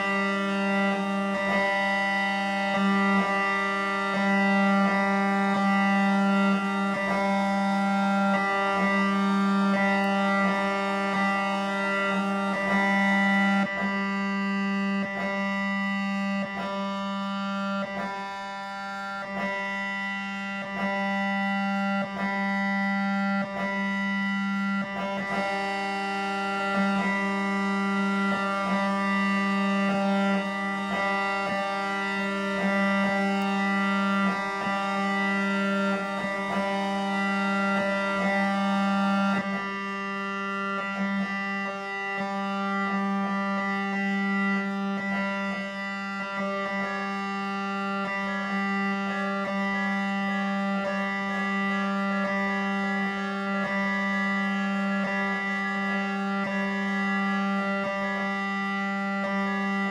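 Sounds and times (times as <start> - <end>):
electronic drone music: 0.0 - 59.9.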